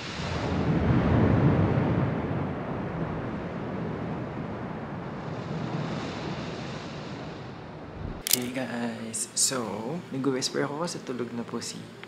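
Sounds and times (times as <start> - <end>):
wind on microphone: 0.5 - 8.3.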